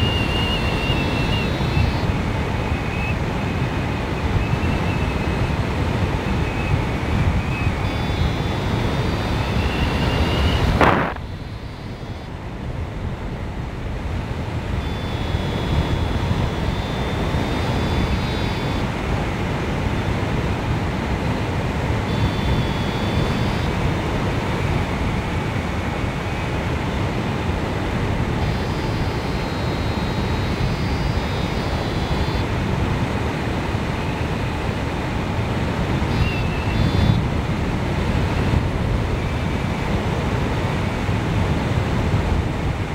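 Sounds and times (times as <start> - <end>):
wind rushing over microphone: 0.0 - 42.9
faint high thin tones: 7.7 - 12.3.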